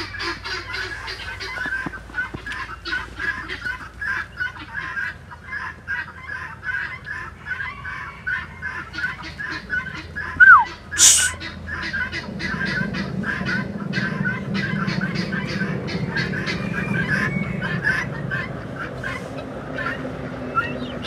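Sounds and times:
geese honking: 0:00.0 - 0:21.0
falling whistle: 0:10.4 - 0:11.4
brief loud hiss: 0:11.0 - 0:11.4.

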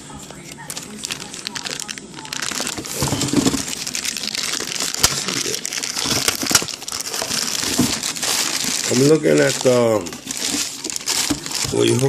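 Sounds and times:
plastic bag crinkling: 0:00.2 - 0:12.0.

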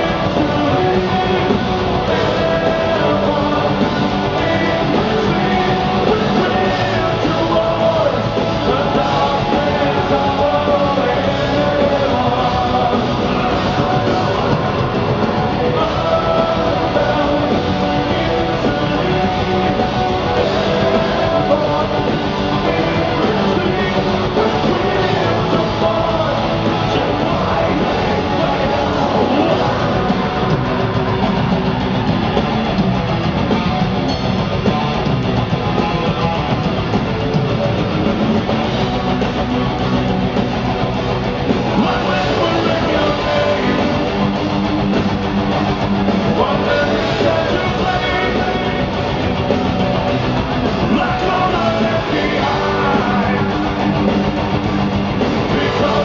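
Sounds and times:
person singing: 0:00.0 - 0:31.6, 0:41.6 - 0:44.4, 0:46.2 - 0:54.2, 0:55.2 - 0:56.0
metal band playing live: 0:00.0 - 0:56.0.

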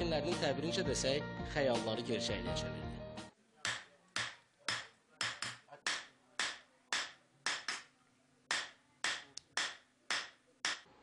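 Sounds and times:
hammer striking copperware: 0:03.7 - 0:07.8.

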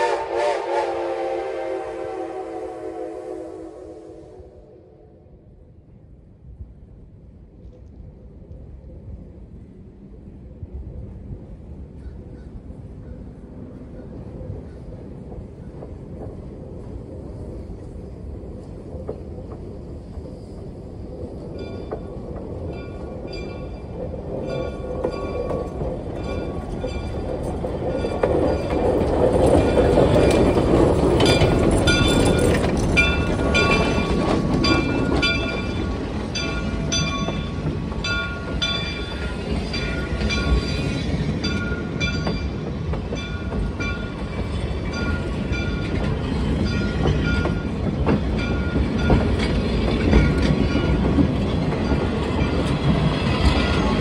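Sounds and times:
train wheels clicking over rail joints: 0:13.9 - 0:54.0.

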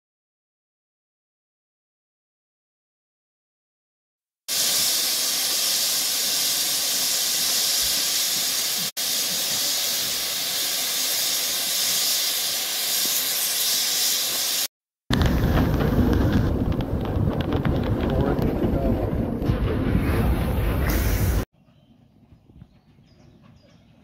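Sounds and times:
steam locomotive hissing steam: 0:04.5 - 0:14.7, 0:20.8 - 0:21.5.

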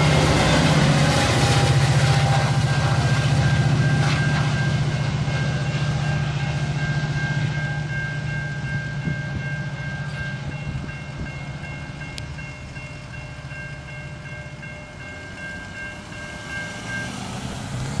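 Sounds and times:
railroad crossing bells ringing: 0:00.0 - 0:18.0
train rumbling: 0:00.0 - 0:18.0.

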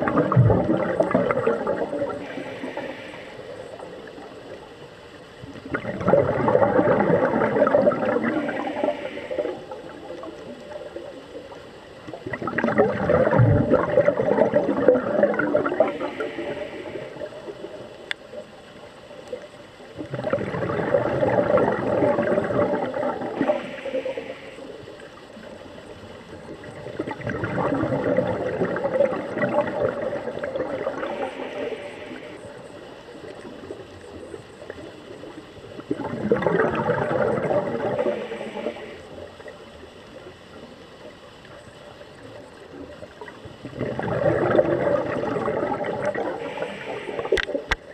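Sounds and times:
bubbles gurgling underwater: 0:00.0 - 0:47.9
regulator hiss: 0:01.0 - 0:05.6, 0:06.9 - 0:12.2, 0:13.8 - 0:20.0, 0:22.8 - 0:27.0, 0:29.2 - 0:35.8, 0:37.3 - 0:43.6, 0:46.0 - 0:47.9.

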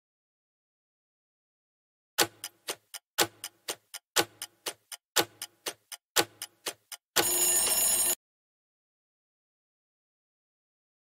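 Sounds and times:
clock ticking: 0:02.2 - 0:08.1
alarm-like ring: 0:07.2 - 0:08.2.

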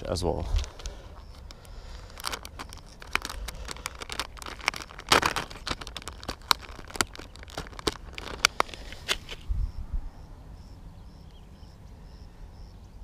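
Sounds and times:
plastic packet crinkling: 0:00.5 - 0:09.4.

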